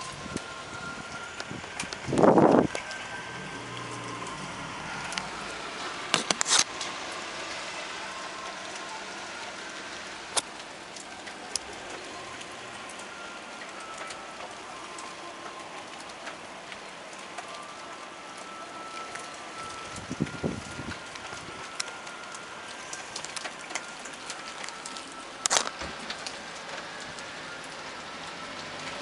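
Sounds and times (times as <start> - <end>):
steady rain falling: 0.0 - 29.0.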